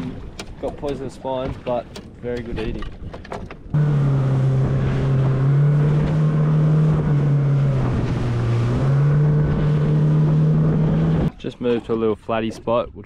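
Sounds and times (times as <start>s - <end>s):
outboard motor droning: 3.6s - 11.3s.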